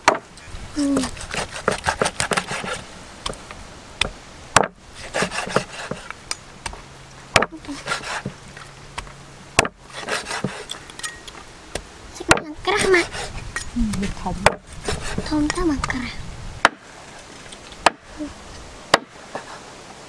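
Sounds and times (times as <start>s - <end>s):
cleaver chopping on wooden board: 0.0s - 0.2s, 1.0s - 3.4s, 4.0s - 8.4s, 9.0s - 10.7s, 13.9s - 15.6s, 18.9s - 19.1s.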